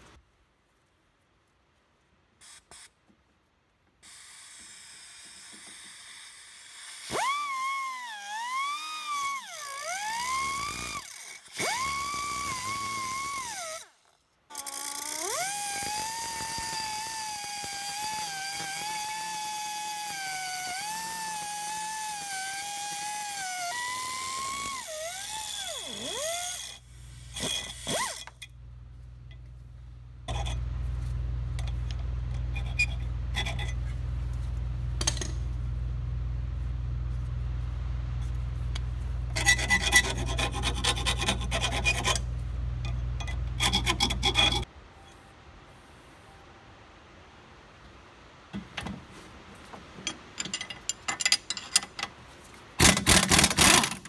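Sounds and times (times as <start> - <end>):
pneumatic cut-off tool whining: 4.0 - 13.9, 14.5 - 28.5
low steady hum: 15.3 - 54.0.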